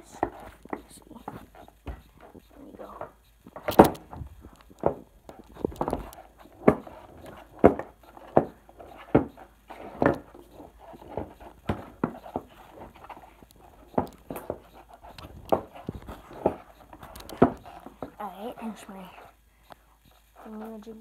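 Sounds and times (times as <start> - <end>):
dull thumps on wooden floor: 0.2 - 2.4, 3.0 - 13.2.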